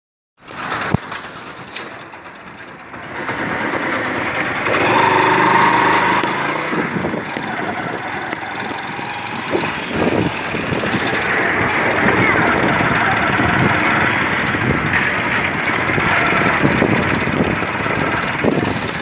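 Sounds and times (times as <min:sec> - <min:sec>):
street traffic: 0:00.4 - 0:19.0
vehicle engine running: 0:00.5 - 0:19.0
held tone: 0:04.7 - 0:07.4.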